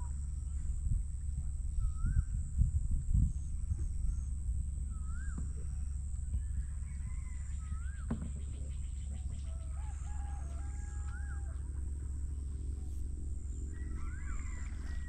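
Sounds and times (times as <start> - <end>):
steady low rumble: 0.0 - 15.0
birds calling: 3.2 - 15.0.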